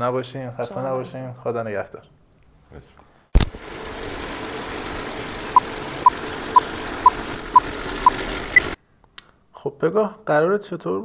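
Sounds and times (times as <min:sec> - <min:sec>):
film projector whirring: 0:03.4 - 0:08.8.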